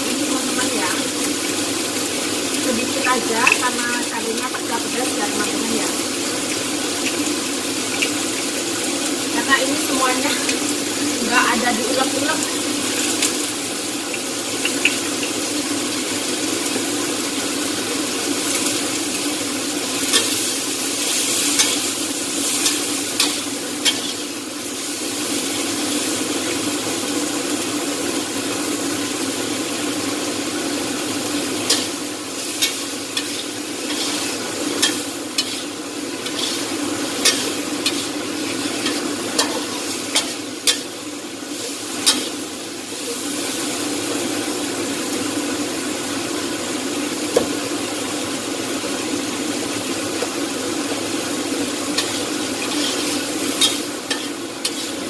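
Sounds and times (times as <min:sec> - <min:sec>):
beans sizzling in a wok: 0:00.0 - 0:55.0
metal turner scraping a pan: 0:20.0 - 0:24.3, 0:31.6 - 0:41.0, 0:41.6 - 0:42.4, 0:51.9 - 0:55.0.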